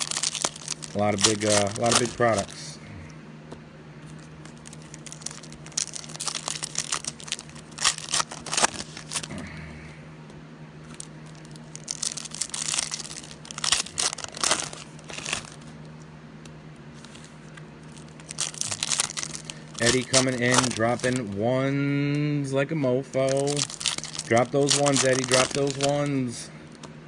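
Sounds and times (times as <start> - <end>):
wrappers tearing and crinkling: 0.0 - 2.7, 4.1 - 9.4, 10.8 - 15.8, 17.0 - 21.4, 23.2 - 26.4
steady low hum: 0.0 - 27.0.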